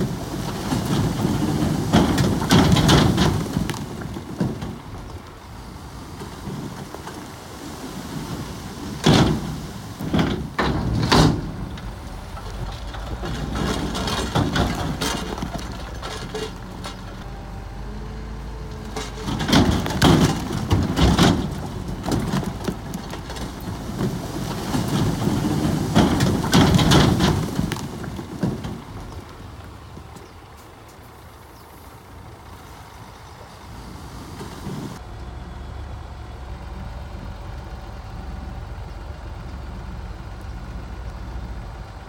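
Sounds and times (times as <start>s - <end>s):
rock and steel crashing: 0.0s - 5.5s, 6.1s - 17.2s, 18.8s - 29.7s
bulldozer diesel engine running: 0.0s - 42.0s.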